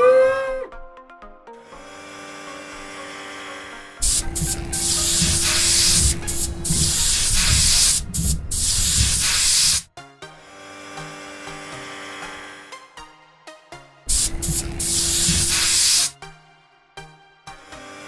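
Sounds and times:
soft background music: 0.0 - 18.0
cartoon spraying water hiss: 4.0 - 9.9, 14.1 - 16.2
low rumble: 4.2 - 9.4.

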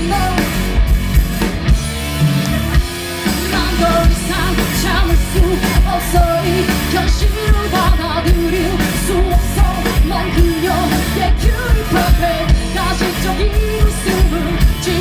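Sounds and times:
rock band playing: 0.0 - 15.0
woman singing: 3.4 - 15.0.

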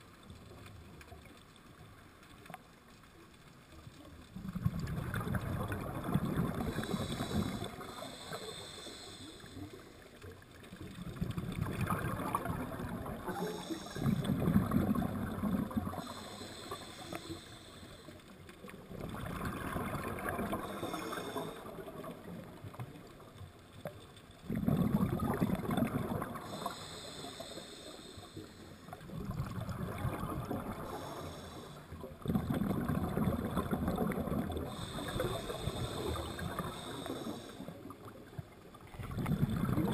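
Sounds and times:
regulator exhale bubbling: 4.4 - 10.1, 10.9 - 22.7, 24.4 - 38.3, 38.9 - 39.9
regulator inhale hissing: 6.5 - 10.2, 13.2 - 14.5, 15.9 - 18.5, 20.3 - 22.3, 26.2 - 29.0, 30.6 - 32.0, 34.6 - 38.1.

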